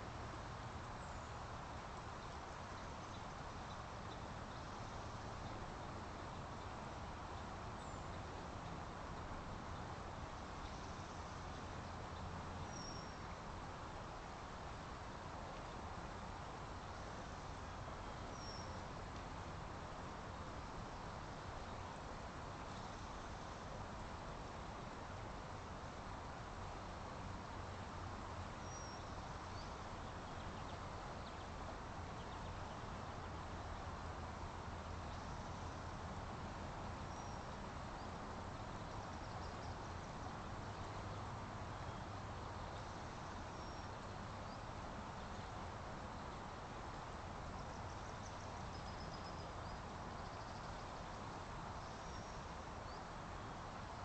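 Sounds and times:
rushing outdoor background noise: 0:00.0 - 0:54.0
faint high bird chirps: 0:12.6 - 0:13.2, 0:18.0 - 0:18.8, 0:28.6 - 0:29.8.

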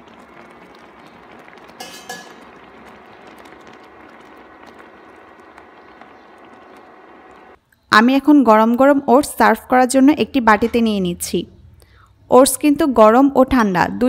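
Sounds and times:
oats simmering in a pan: 0:00.0 - 0:07.6.

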